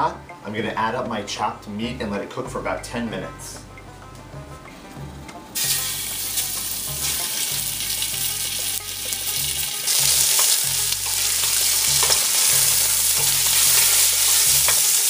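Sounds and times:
meat sizzling in hot oil: 0:05.6 - 0:15.0.

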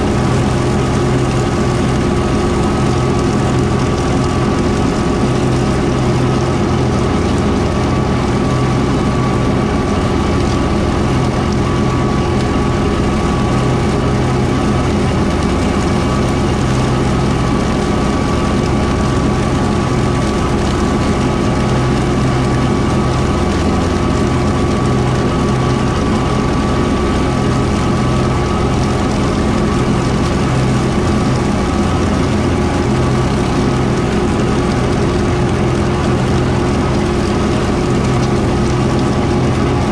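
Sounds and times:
rotary mower: 0:00.0 - 0:39.9
tractor diesel engine running: 0:00.0 - 0:39.9.

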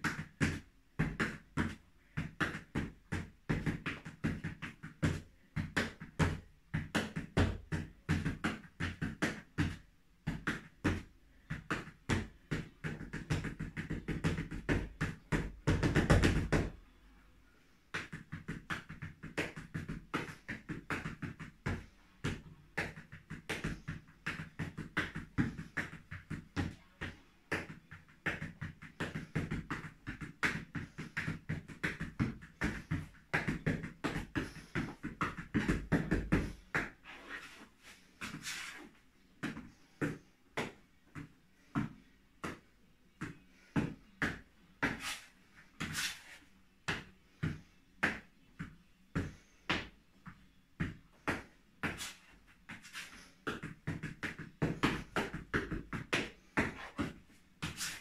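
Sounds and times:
shoes stamping on wooden floor: 0:27.5 - 0:36.9, 0:52.8 - 0:58.0.

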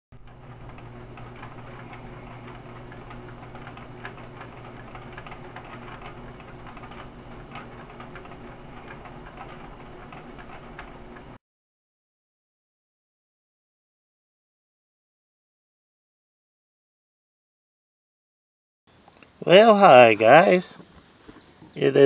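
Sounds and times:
light ticks and clicks: 0:00.2 - 0:11.4
steady low hum: 0:00.2 - 0:11.4.

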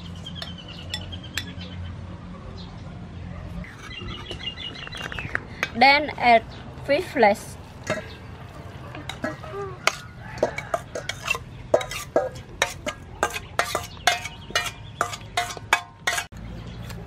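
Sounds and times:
metal spoon scraping steel bowls: 0:03.6 - 0:05.8, 0:08.9 - 0:17.0.

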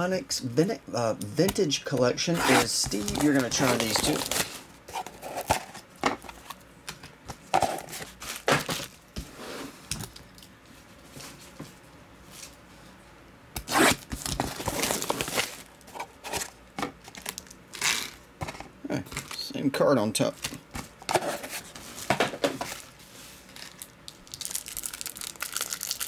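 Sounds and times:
plastic wrap tearing and crinkling: 0:02.3 - 0:05.6, 0:13.6 - 0:15.8, 0:17.1 - 0:18.2, 0:22.6 - 0:26.0.

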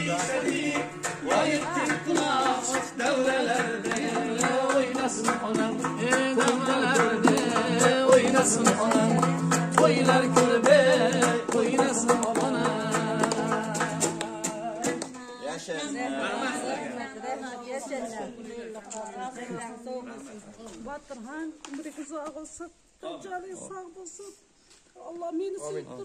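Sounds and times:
folk-style song: 0:00.0 - 0:15.2
percussion beat: 0:00.0 - 0:15.2.

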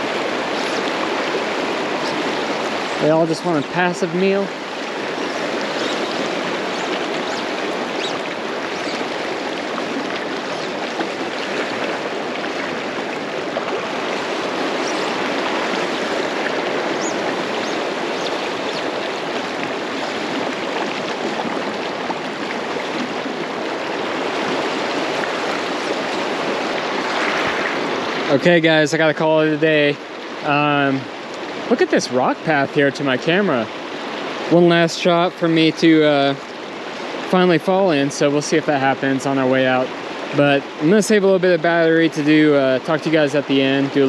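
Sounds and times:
river rushing over rocks: 0:00.0 - 0:31.8.

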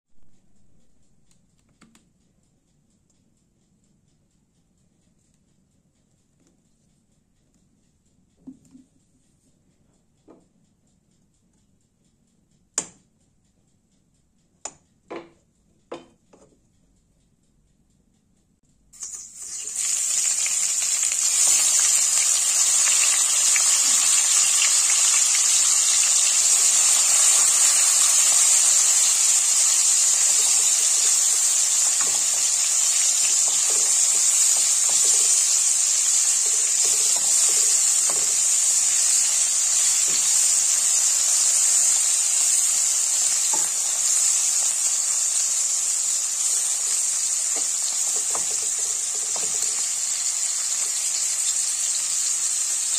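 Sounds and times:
fish frying in hot oil: 0:19.0 - 0:52.9.

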